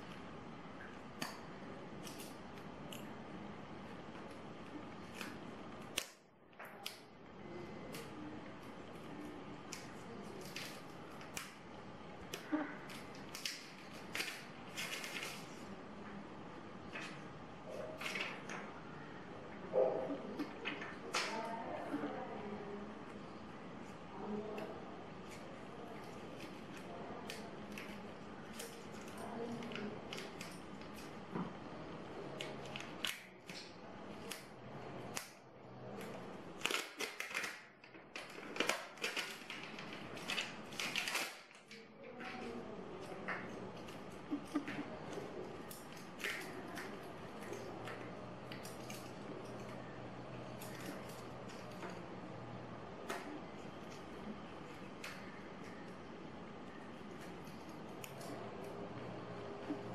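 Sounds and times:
plastic sheets crackling: 7.4 - 16.0, 35.9 - 49.8.

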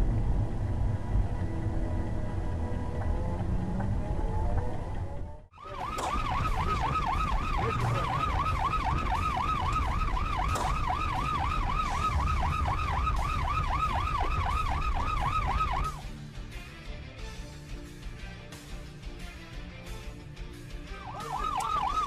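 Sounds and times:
engine and road noise: 0.0 - 22.0
siren yelping: 5.6 - 16.1, 21.0 - 22.0.

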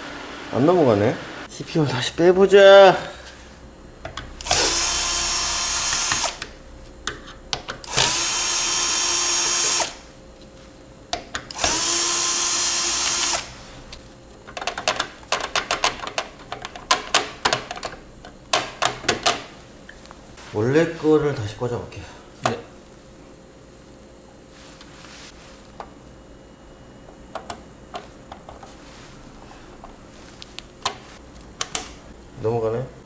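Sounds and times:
electric screwdriver whirring: 4.4 - 6.5, 7.8 - 10.1, 11.5 - 13.6.

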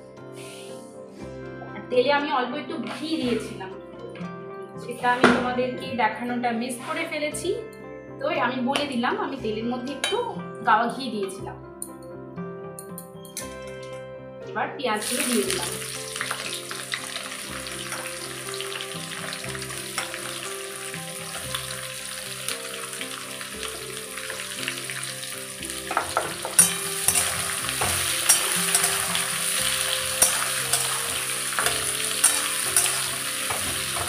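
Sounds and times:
onions sizzling in hot oil: 15.0 - 34.0
metal spatula scraping pan: 25.9 - 34.0.

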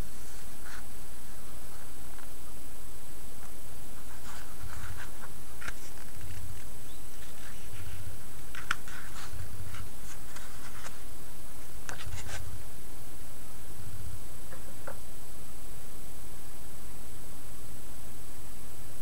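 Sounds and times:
catalog pages rustling: 4.0 - 11.0.

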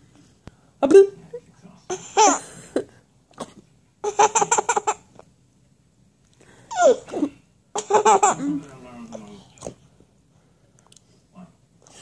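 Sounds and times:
baby laughing: 1.9 - 2.4, 4.0 - 5.1, 6.7 - 8.5.

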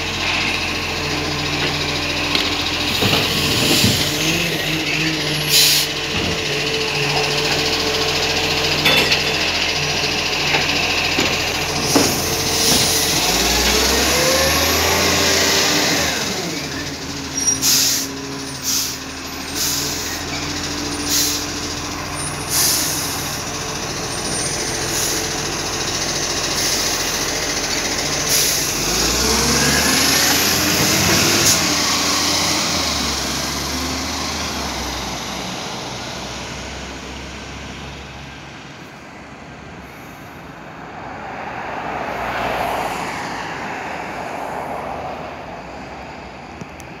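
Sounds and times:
passing traffic: 0.0 - 47.0
truck diesel engine: 0.0 - 47.0
air brake hisses: 5.5 - 6.0, 17.4 - 19.0, 21.0 - 21.4.

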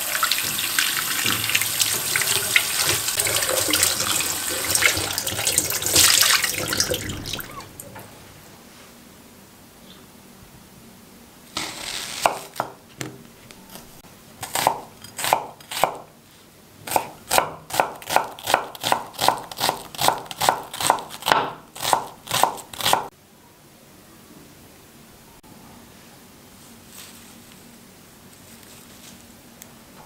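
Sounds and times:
knife chopping onion on wood: 14.4 - 16.0, 16.9 - 23.1.

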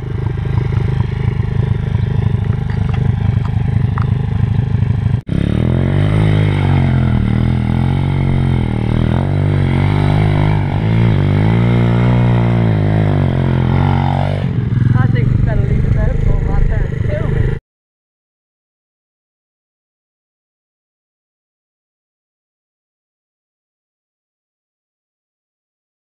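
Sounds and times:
pit bike engine idling and revving: 0.0 - 17.6.

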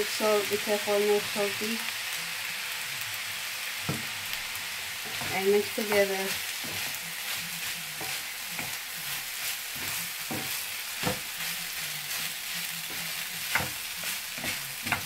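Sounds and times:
rice sizzling in a frying pan: 0.0 - 15.0
spatula scraping and knocking pan: 3.8 - 4.1, 5.0 - 15.0.

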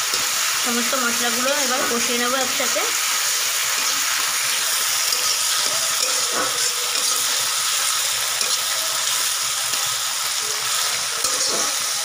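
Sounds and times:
paste sizzling in hot oil: 0.0 - 12.0
metal spatula scraping a pan: 3.3 - 12.0.

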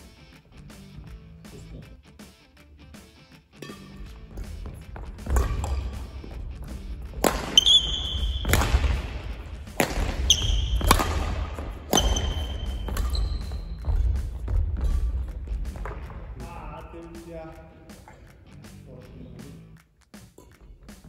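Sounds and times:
shoes squeaking on floor: 3.5 - 16.6
rackets striking shuttlecock: 3.6 - 16.4
footsteps thudding: 4.0 - 16.5.

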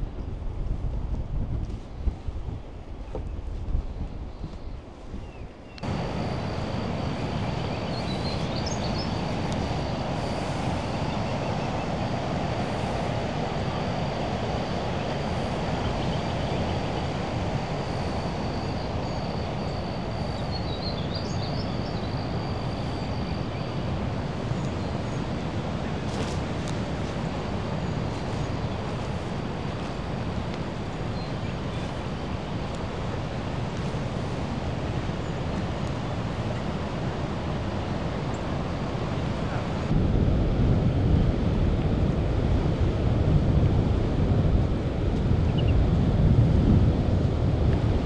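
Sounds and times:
wind buffeting microphone: 0.0 - 48.0
faint high whine: 4.1 - 42.3
bird chirps: 7.6 - 9.3.

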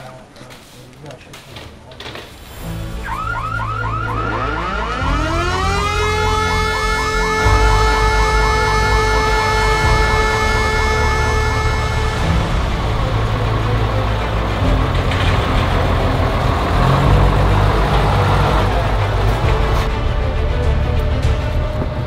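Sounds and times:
low rumble: 2.6 - 22.0
fast warbling siren: 2.9 - 12.9
wailing siren: 2.9 - 22.0.

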